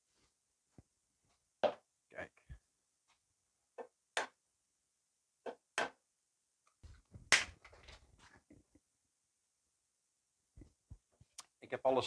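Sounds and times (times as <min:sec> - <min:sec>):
clatter of things handled: 0:06.8 - 0:08.6.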